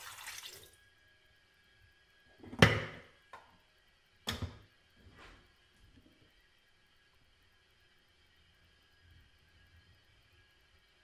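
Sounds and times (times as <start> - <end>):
water trickling into kettle: 0.0 - 0.8.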